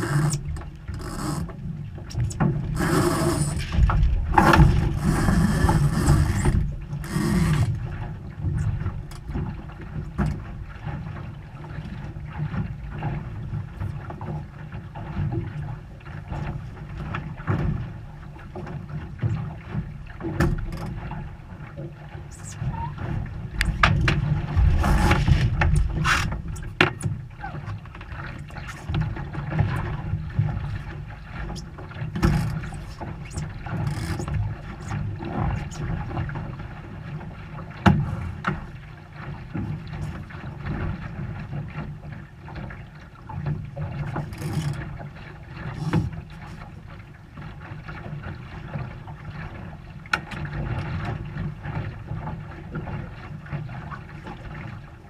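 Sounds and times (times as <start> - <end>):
water rushing along hull: 0.0 - 55.0
wind buffeting: 3.6 - 6.2, 23.4 - 26.8.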